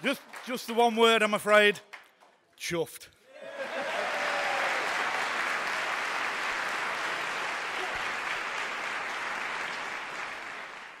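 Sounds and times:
audience applauding: 0.0 - 1.1, 3.5 - 11.0.

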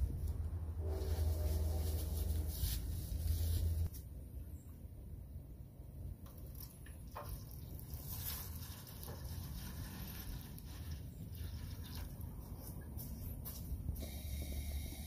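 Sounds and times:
water pouring into foil tray: 6.4 - 12.2.

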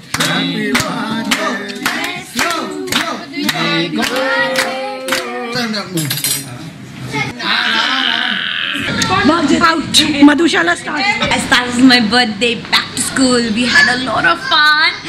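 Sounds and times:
group singing: 0.0 - 6.0
people clapping in time: 0.1 - 5.4.

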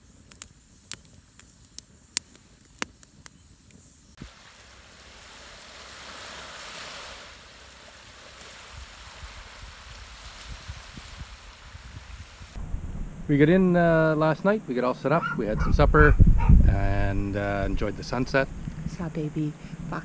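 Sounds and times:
wood fire crackling and popping: 0.0 - 3.8
wind: 0.0 - 20.0
small waves on sand: 4.2 - 12.6.

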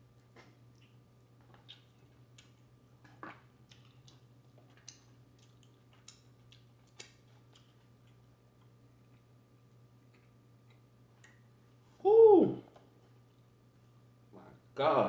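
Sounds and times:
mouth clicks and lip smacks: 0.3 - 9.3.

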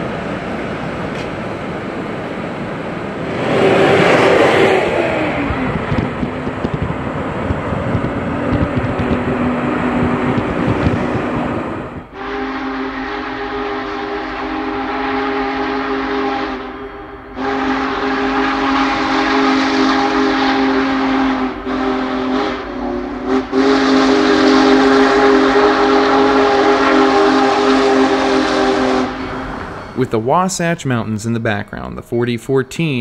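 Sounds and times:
road and car noise: 0.0 - 12.2, 26.3 - 33.0
steam whistle blasts: 12.1 - 30.2.

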